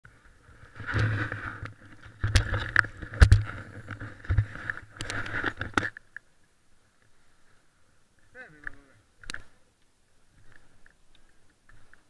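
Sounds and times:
clicks of ski gear: 0:00.7 - 0:06.3, 0:08.6 - 0:09.6.

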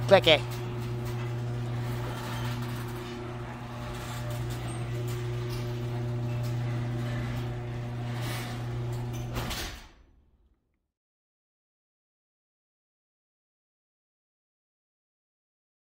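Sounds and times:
garage door motor hum: 0:00.0 - 0:10.4
garage door thump shutting: 0:01.2 - 0:10.1.

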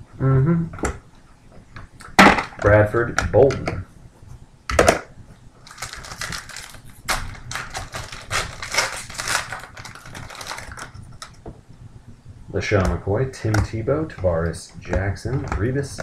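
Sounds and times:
foil wrapper tearing and crinkling: 0:05.6 - 0:11.4.

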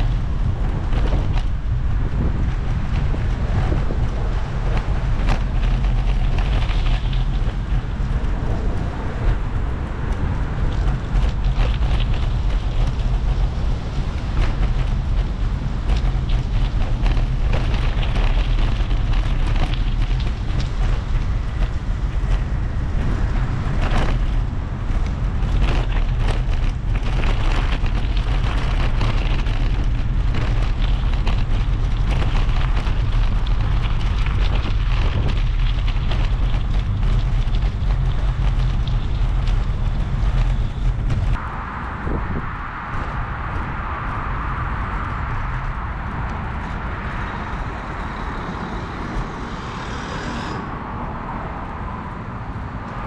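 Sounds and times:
bicycle knocks and rattles: 0:00.0 - 0:41.4
wind buffeting microphone: 0:00.0 - 0:53.0.

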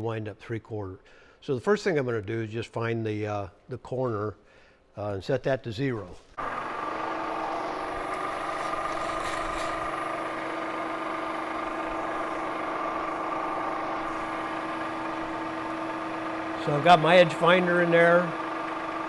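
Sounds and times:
milling machine spindle humming: 0:06.4 - 0:19.0.

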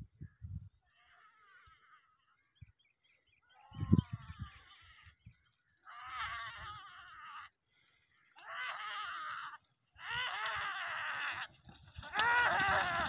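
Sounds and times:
people shouting high-pitched calls: 0:12.1 - 0:13.0.

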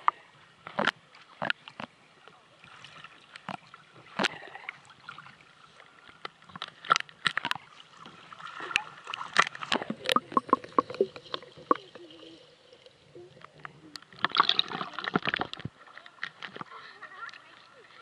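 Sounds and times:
water splashing and lapping: 0:00.0 - 0:18.0
underwater gurgling bubbles: 0:08.0 - 0:15.8.

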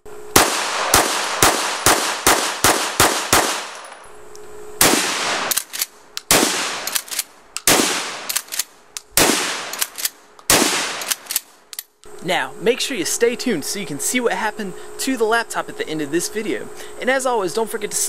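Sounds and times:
shotgun blasts: 0:00.3 - 0:03.9, 0:04.8 - 0:08.6, 0:09.2 - 0:11.4
handgun shots: 0:00.4 - 0:03.9, 0:04.8 - 0:11.5
shotgun pump clacking: 0:05.5 - 0:05.9, 0:06.8 - 0:07.7, 0:08.3 - 0:09.1, 0:09.7 - 0:11.9.

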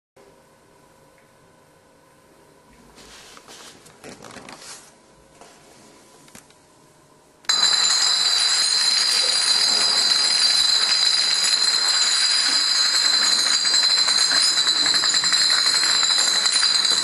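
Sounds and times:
glass bottles toppling and clinking: 0:07.5 - 0:17.0.

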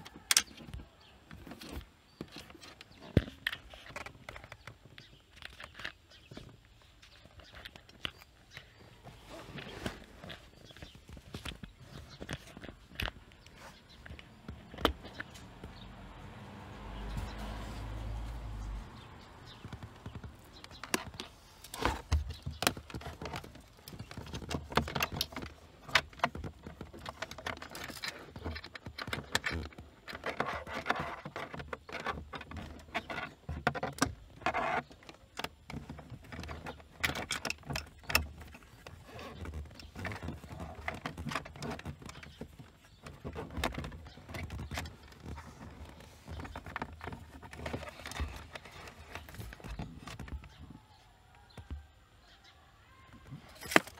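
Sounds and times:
rustling: 0:00.0 - 0:53.9
plastic clicks and knocks: 0:19.6 - 0:51.9.

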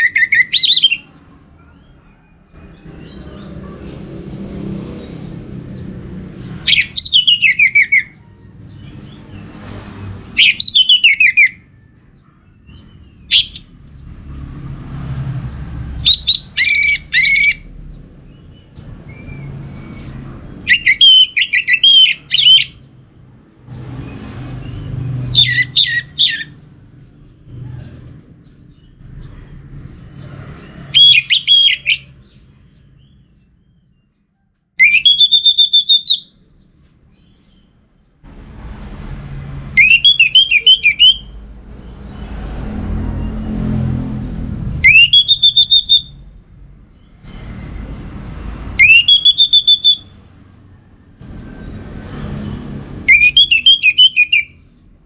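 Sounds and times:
thrush singing whistles and trills: 0:00.0 - 0:01.2, 0:06.4 - 0:08.2, 0:10.2 - 0:11.8, 0:12.6 - 0:13.7, 0:16.0 - 0:22.9, 0:24.2 - 0:26.6, 0:30.8 - 0:32.8, 0:34.8 - 0:36.4, 0:39.7 - 0:41.4, 0:44.8 - 0:46.4, 0:48.1 - 0:50.5, 0:53.0 - 0:54.9.

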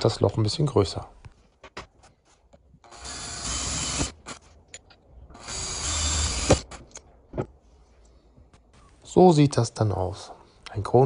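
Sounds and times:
cordless drill boring metal: 0:02.8 - 0:04.4, 0:05.3 - 0:07.0.

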